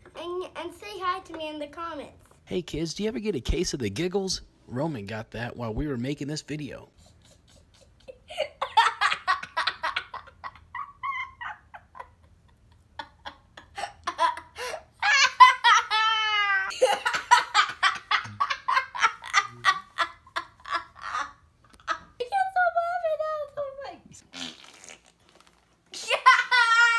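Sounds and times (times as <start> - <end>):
boy giggling: 6.9 - 22.2, 26.0 - 26.9.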